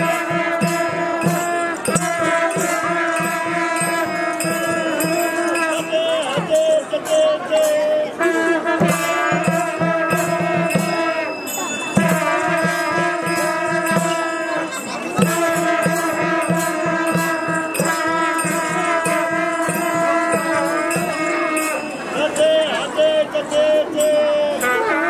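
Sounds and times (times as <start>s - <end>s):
barrel drum beating: 0.0s - 5.8s, 8.7s - 11.2s, 15.2s - 21.6s.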